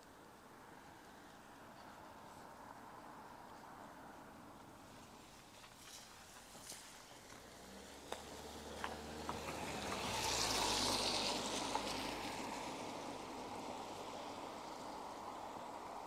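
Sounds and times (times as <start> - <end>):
car engine hum: 4.0 - 16.0
tyres hissing on wet road: 4.8 - 16.0.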